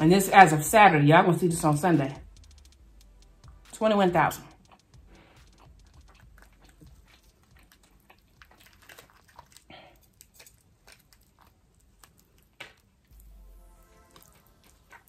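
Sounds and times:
lobster shell crackling: 4.5s - 13.1s.

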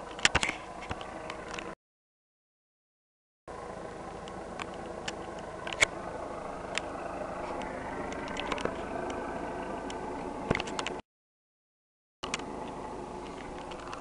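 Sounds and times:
helicopter engine droning: 0.0s - 1.8s, 3.5s - 11.0s, 12.2s - 14.0s.

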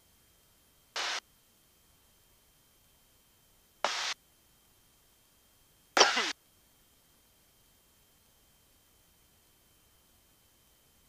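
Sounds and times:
short bursts of headset hiss: 1.0s - 1.2s, 3.8s - 4.2s, 6.0s - 6.4s.

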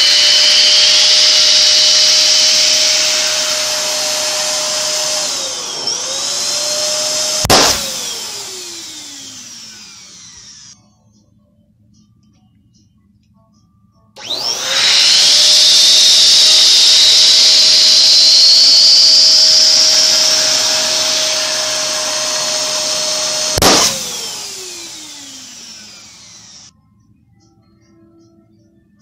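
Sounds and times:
electric balloon pump whining: 0.0s - 10.8s, 14.2s - 26.7s
balloon bursting pop: 7.4s - 7.9s, 23.6s - 24.0s.

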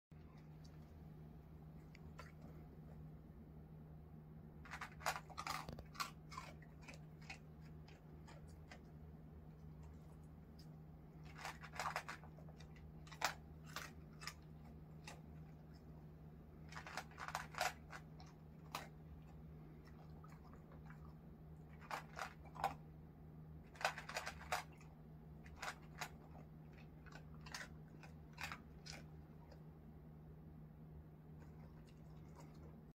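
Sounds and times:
dog crunching dry kibble: 4.6s - 22.9s, 23.6s - 29.7s, 31.4s - 32.9s.

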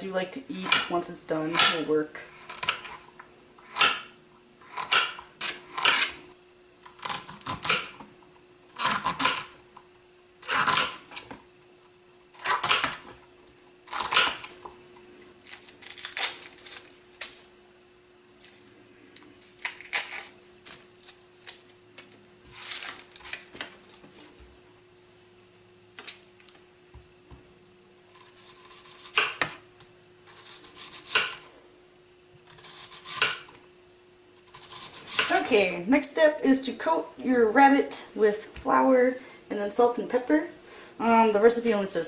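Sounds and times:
faint steady hum: 0.0s - 42.0s
knife chopping on plastic board: 0.6s - 0.9s, 1.5s - 1.9s, 3.7s - 4.2s, 4.8s - 6.2s, 29.0s - 29.6s, 30.8s - 31.4s, 32.5s - 33.5s.

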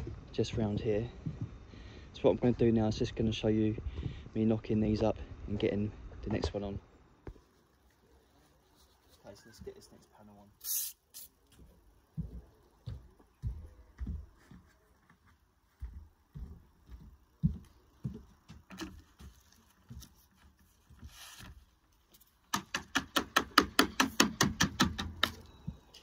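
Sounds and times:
soft knocks and handling noises: 11.5s - 22.4s.

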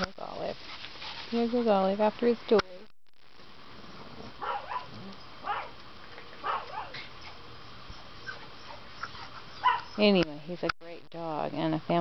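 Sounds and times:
dog yipping and whining: 6.4s - 10.1s.

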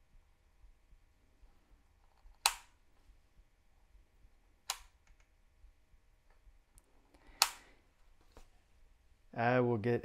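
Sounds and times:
rotary switch clicks: 2.4s - 2.8s.

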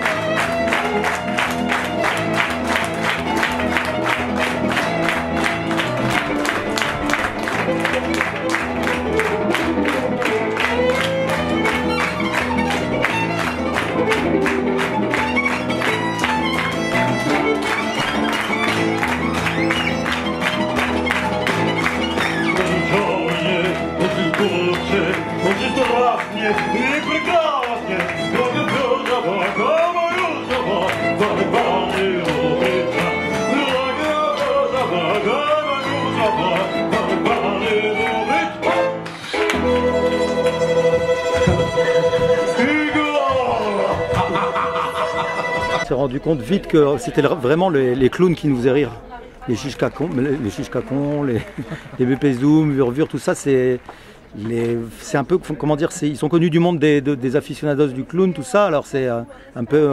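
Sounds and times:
piano playing: 0.0s - 47.5s
violin playing: 0.0s - 47.6s.

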